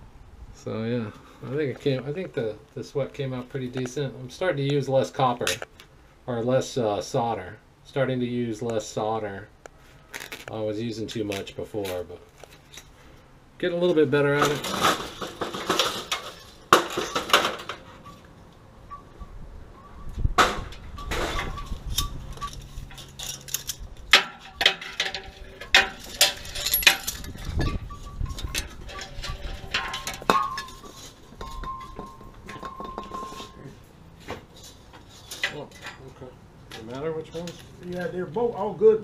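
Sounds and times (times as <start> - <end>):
sheet metal clinking and rattling: 14.4 - 18.3, 20.4 - 33.8.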